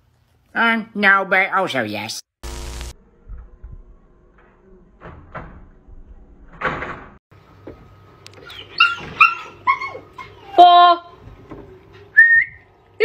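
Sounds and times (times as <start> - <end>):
noisy scrape: 2.4 - 3.0
dog whining: 8.4 - 10.9.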